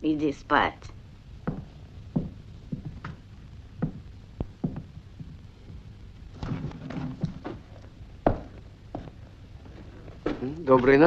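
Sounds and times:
soft knocks and thuds: 1.4 - 5.8, 6.4 - 9.2.

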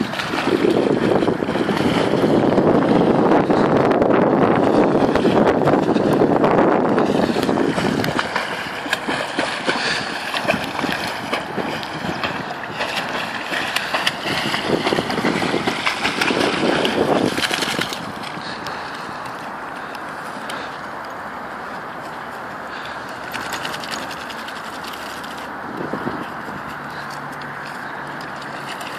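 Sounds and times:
wind buffeting microphone: 0.0 - 20.0, 25.4 - 28.0
dog paddling in water: 0.0 - 28.9.

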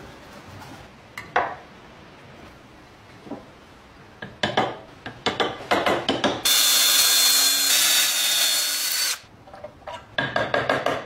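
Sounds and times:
power tool whining: 6.5 - 9.3.

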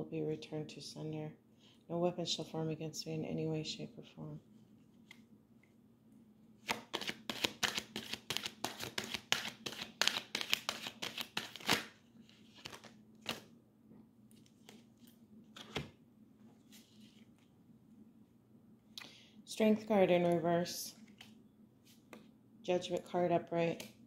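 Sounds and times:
cards being shuffled: 6.6 - 13.5, 14.3 - 15.9.

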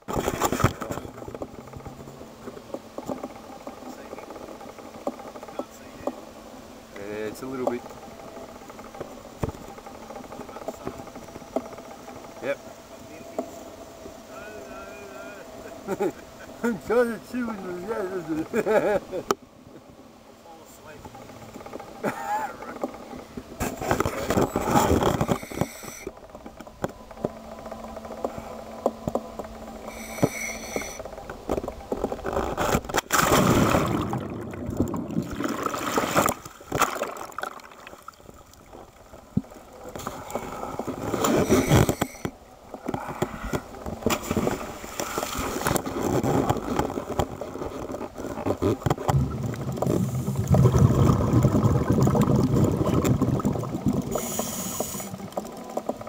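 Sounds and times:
muffled underwater noise: 0.0 - 26.2, 29.4 - 32.8, 38.7 - 44.1, 45.4 - 56.0
water sloshing and splashing: 31.0 - 56.0.

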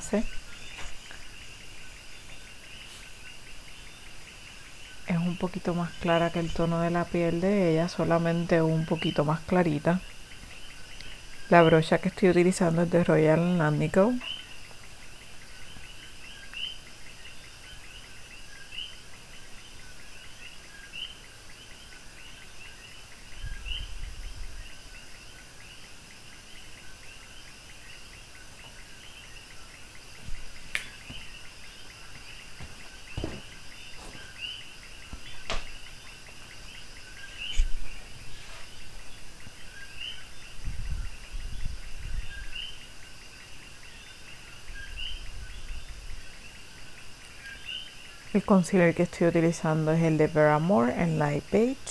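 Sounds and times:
low thumps: 32.6 - 34.2.

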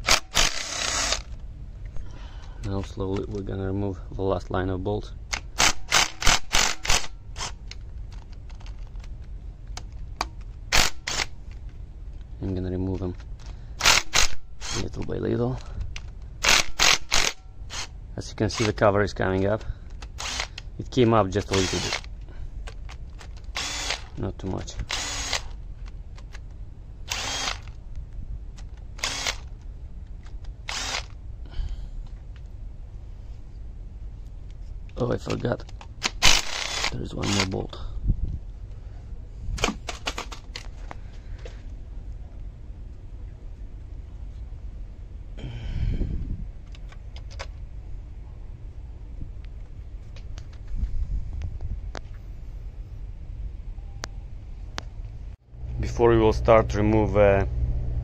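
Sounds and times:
power driver whirring: 0.0 - 1.4, 5.4 - 7.8, 13.8 - 15.0, 20.0 - 20.6, 21.4 - 22.1, 23.3 - 24.2, 24.8 - 25.6, 27.0 - 27.8, 29.0 - 29.5, 30.4 - 31.2, 36.0 - 37.6
ratchet wrench clicking: 16.4 - 17.9, 36.0 - 37.5.

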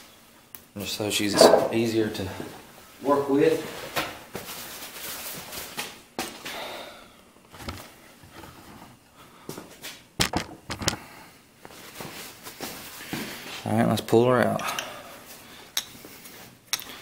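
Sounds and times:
metal parts clicking and knocking: 10.2 - 11.0.

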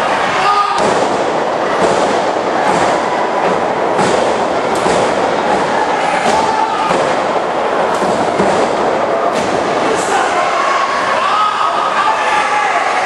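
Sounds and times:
crowd noise: 0.0 - 13.0
bodies thudding on wrestling ring: 0.8 - 9.7.

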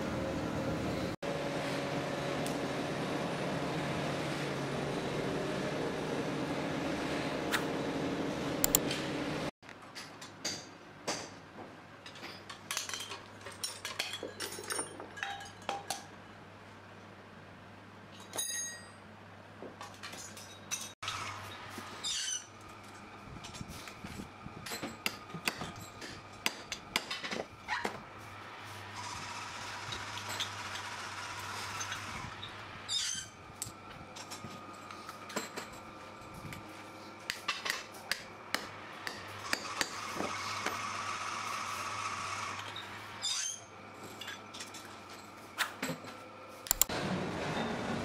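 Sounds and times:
workshop machine hum: 0.0 - 9.6, 21.0 - 48.0
metal tools clinking on parts: 12.0 - 16.1, 18.1 - 19.0.

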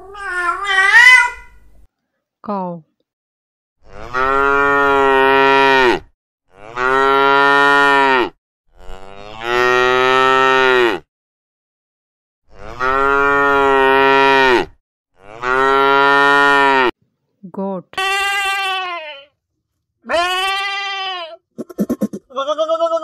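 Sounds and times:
cow mooing: 3.8 - 11.1, 12.5 - 16.9.

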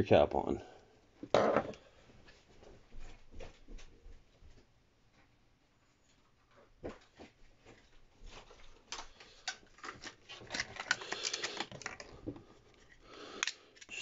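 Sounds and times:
hands handling small parts: 8.4 - 14.0.

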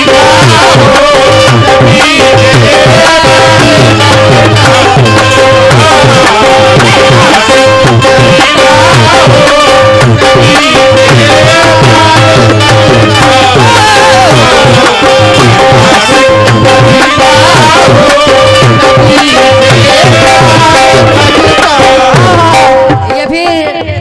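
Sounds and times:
harmonium held notes: 0.0 - 24.0
tabla and dholak rhythm: 0.0 - 24.0
pitch-bending melody: 2.7 - 23.9.

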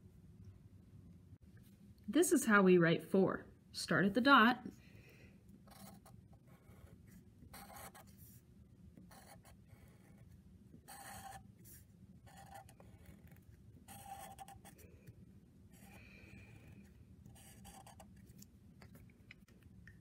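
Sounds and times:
marker scratching on paper: 5.7 - 8.4, 9.0 - 18.5.

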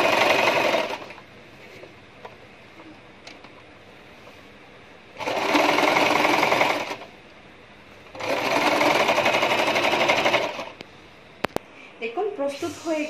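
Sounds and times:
sewing machine stitching: 0.0 - 1.2, 5.2 - 7.1, 8.1 - 10.8.

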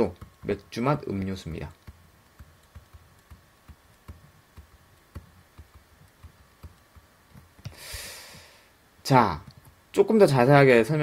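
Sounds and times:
stylus tapping on tablet screen: 0.0 - 8.5.

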